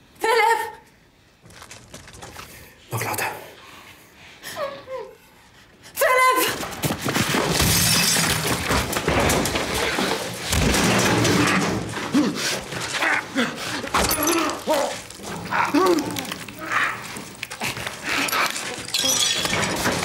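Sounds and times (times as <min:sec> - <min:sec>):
wood splintering: 0:07.4 - 0:20.0
glass shattering: 0:07.5 - 0:12.0, 0:13.9 - 0:20.0.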